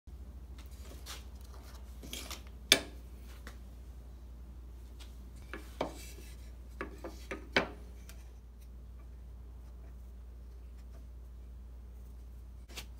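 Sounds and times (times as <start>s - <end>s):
tool handling rubbing and scraping: 5.4s - 8.8s.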